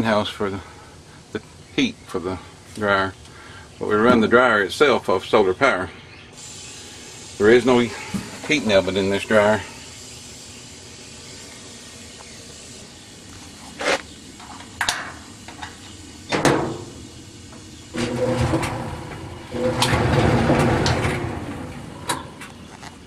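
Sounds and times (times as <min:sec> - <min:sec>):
dryer door clunking open: 0:16.3 - 0:17.0, 0:18.0 - 0:22.4
door rubbing and knocking: 0:18.0 - 0:22.4.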